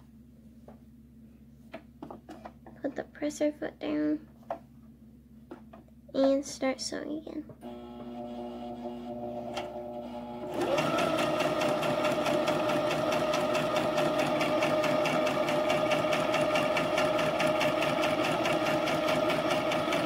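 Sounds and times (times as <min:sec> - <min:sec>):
sewing machine stitching: 0:07.6 - 0:20.0.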